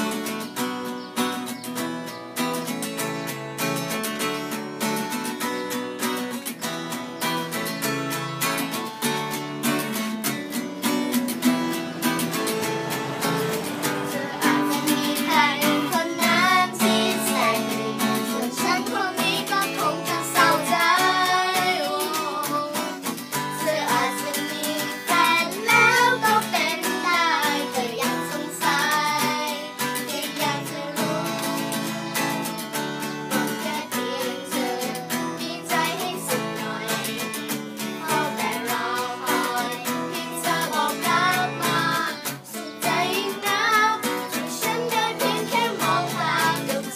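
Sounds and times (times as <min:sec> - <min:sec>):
acoustic guitar strumming: 0:00.0 - 0:46.9
people singing: 0:10.8 - 0:46.9.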